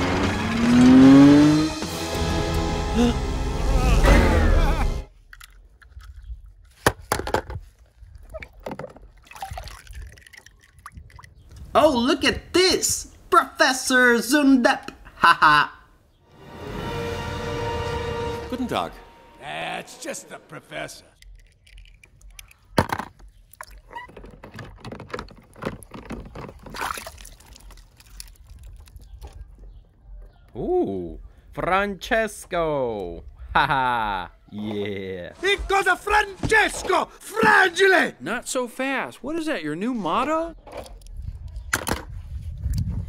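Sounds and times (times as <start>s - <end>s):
water sloshing in plastic tub: 8.2s - 11.4s, 21.7s - 29.4s
hand splashing water in tub: 26.7s - 28.2s.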